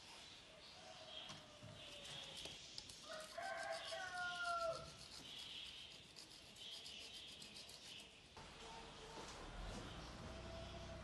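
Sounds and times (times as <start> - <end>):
rooster crowing: 3.0 - 4.9.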